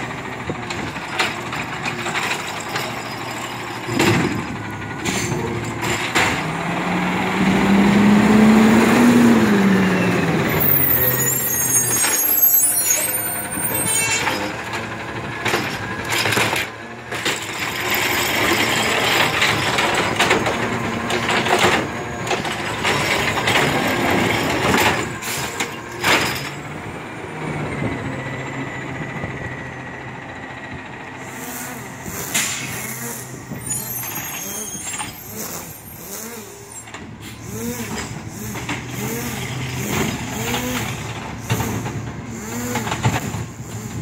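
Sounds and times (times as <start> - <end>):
garbage truck engine drone: 0.0 - 44.0
cart knocking and clattering: 0.2 - 6.6, 14.1 - 26.7, 39.8 - 44.0.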